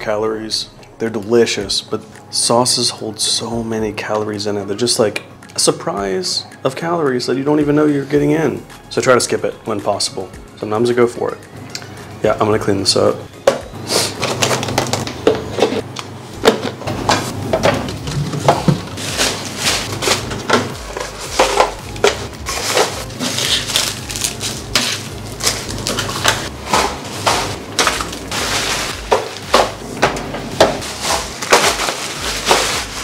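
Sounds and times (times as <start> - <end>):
plastic bag crinkling: 18.9 - 29.9, 30.8 - 33.0.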